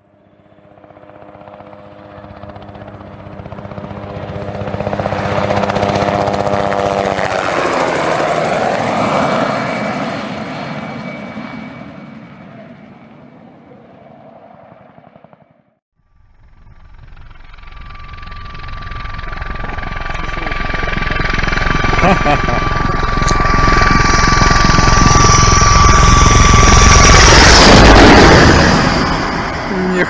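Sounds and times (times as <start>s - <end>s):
helicopter flying by: 0.0s - 30.0s.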